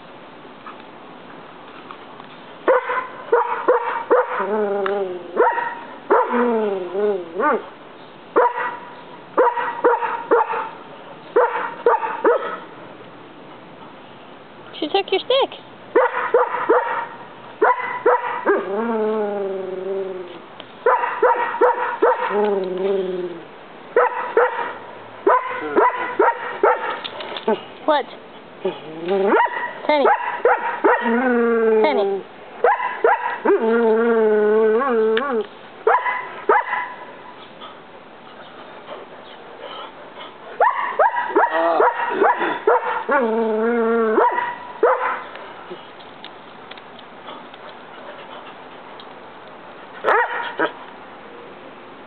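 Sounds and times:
dog barking: 2.7 - 4.5, 5.4 - 6.4, 8.4 - 10.8, 11.4 - 12.7, 16.0 - 18.6, 20.8 - 22.4, 24.0 - 27.0, 29.3 - 31.1, 32.6 - 33.5, 35.9 - 37.2, 40.6 - 43.2, 44.2 - 45.3, 50.0 - 50.8
dog whining bark: 2.7 - 4.5, 5.4 - 6.4, 7.3 - 7.7, 8.4 - 10.8, 11.4 - 12.6, 16.0 - 18.7, 20.9 - 22.5, 24.0 - 27.0, 29.1 - 31.2, 32.6 - 33.7, 34.8 - 37.1, 40.6 - 43.3, 44.1 - 45.3, 50.0 - 50.8
dog whining: 28.6 - 29.5, 33.4 - 35.5.

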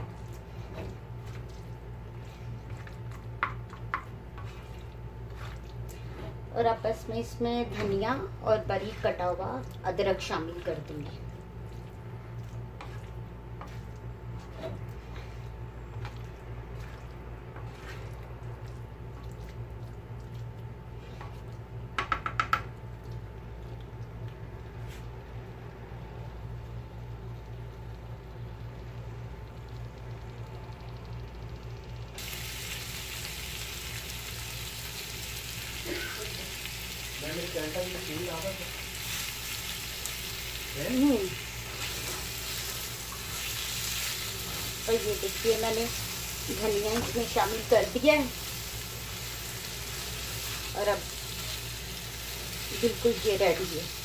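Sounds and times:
spatula stirring: 0.0 - 22.7
steady low hum: 0.0 - 54.0
utensil tapping against pan: 22.0 - 22.7
food sizzling on a griddle: 32.2 - 54.0.

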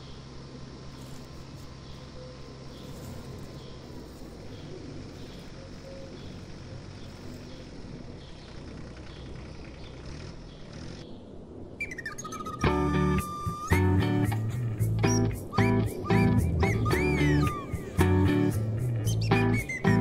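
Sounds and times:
low hum: 0.0 - 20.0
guitar music: 12.6 - 20.0.

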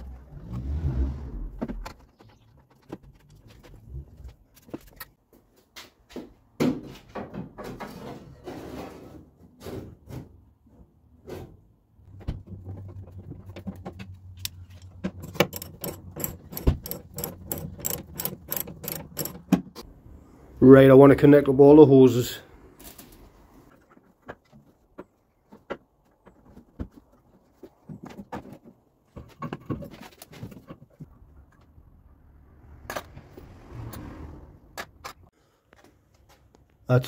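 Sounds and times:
hand tools clinking on metal: 14.9 - 19.5
socket ratchet clicking: 15.2 - 19.5.

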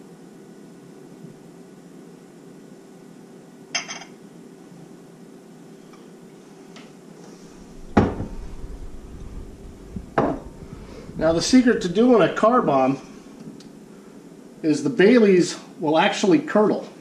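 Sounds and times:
low hiss: 7.2 - 17.0.

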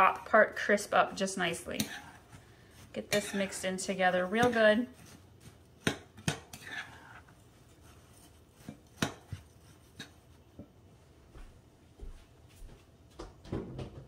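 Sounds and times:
gritty scrape of crumble mixture: 0.0 - 10.4.

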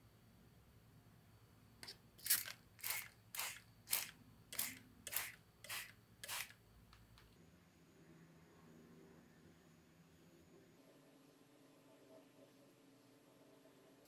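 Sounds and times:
spray bottle hissing: 1.8 - 6.6.

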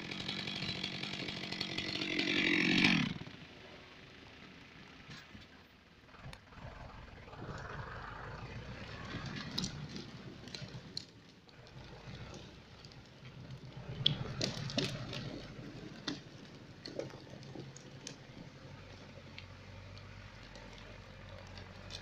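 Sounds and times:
logs dragging over ground: 0.0 - 3.3, 5.1 - 22.0
tractor diesel engine: 0.0 - 22.0
wood and chain cracks and knocks: 9.2 - 22.0.

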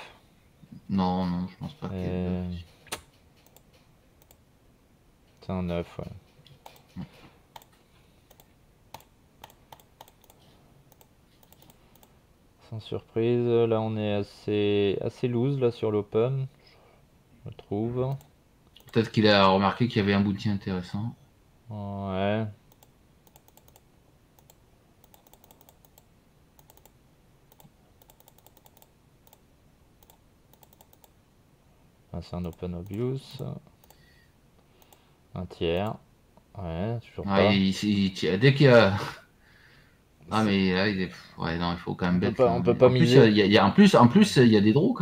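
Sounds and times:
keyboard and mouse clicking: 2.9 - 4.4, 6.4 - 12.1, 18.1 - 19.0, 22.7 - 29.4, 30.0 - 31.2, 32.4 - 34.0.

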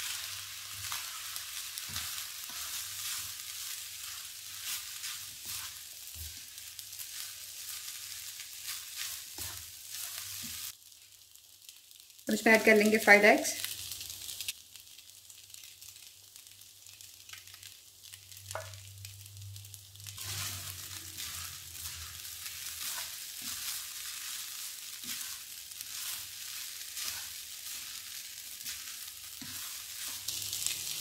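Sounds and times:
wooden spatula scraping wok: 0.0 - 10.7, 20.1 - 31.0
rice sizzling in a wok: 0.0 - 31.0.

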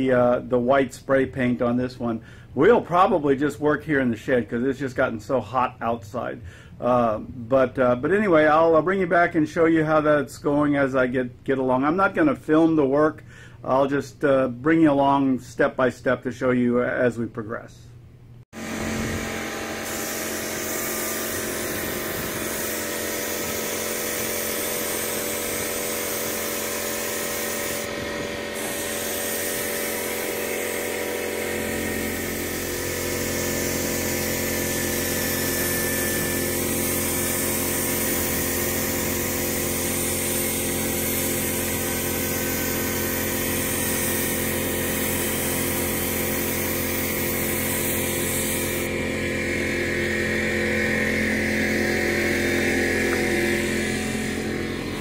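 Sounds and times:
spray gun hissing: 18.6 - 48.9
air compressor humming: 18.6 - 55.0.

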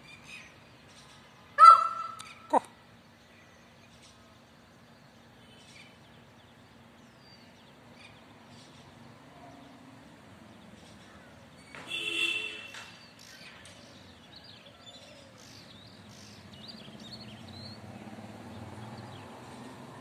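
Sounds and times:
peacock calling: 1.6 - 2.8.

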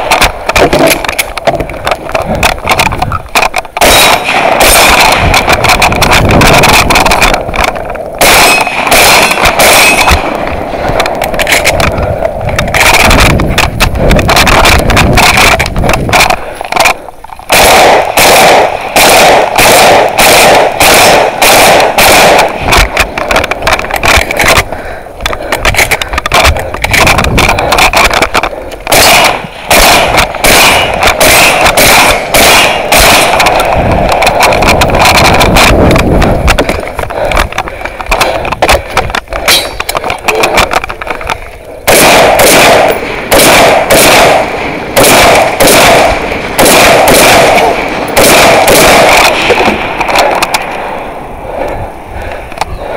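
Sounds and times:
shotgun shots: 0.0 - 24.7, 25.7 - 40.9, 41.8 - 51.1.

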